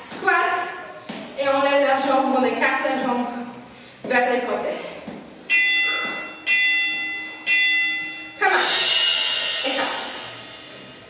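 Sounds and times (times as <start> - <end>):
bell-like timer tones: 5.5 - 8.4
longer fuller chime: 5.5 - 9.6.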